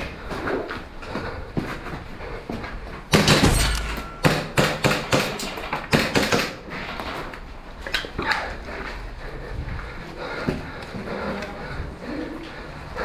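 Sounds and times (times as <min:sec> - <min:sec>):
boots on concrete stairs: 0:00.0 - 0:04.0, 0:08.1 - 0:11.8.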